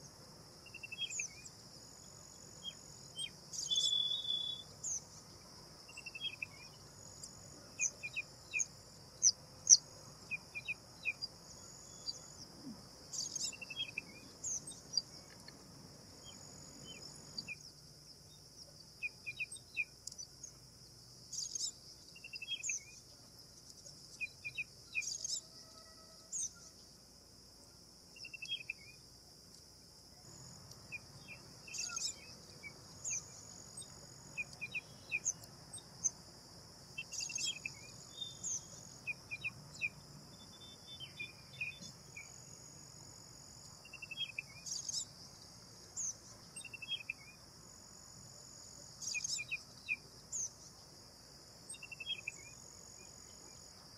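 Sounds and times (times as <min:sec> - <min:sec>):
bird chirps and calls: 0:03.5 - 0:05.0.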